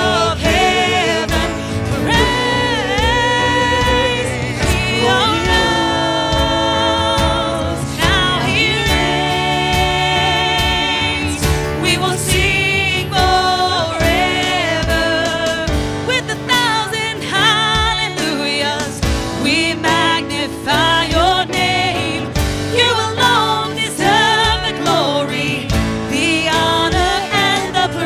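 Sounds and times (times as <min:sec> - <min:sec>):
voices singing held notes: 0:00.0 - 0:18.9
bass: 0:00.0 - 0:28.0
electric guitar: 0:00.0 - 0:28.0
keyboard: 0:00.0 - 0:28.0.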